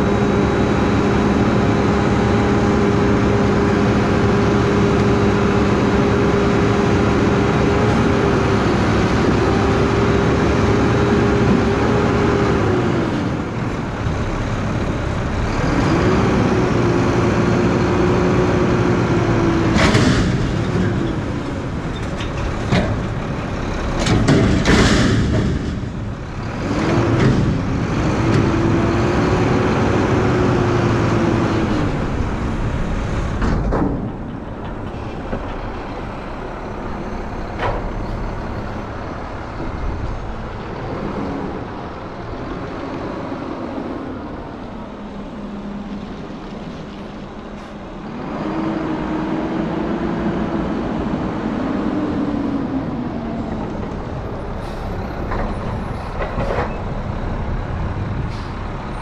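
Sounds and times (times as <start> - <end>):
garbage truck engine revving: 0.0 - 59.0
loud metal bangs: 19.6 - 28.7
sharp knocks: 24.0 - 26.2.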